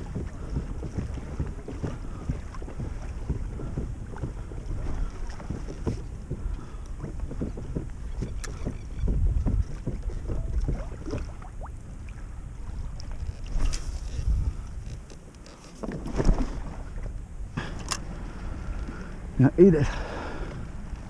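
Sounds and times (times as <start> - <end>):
wind buffeting microphone: 0.0 - 15.2
waves lapping against hull: 0.0 - 21.0.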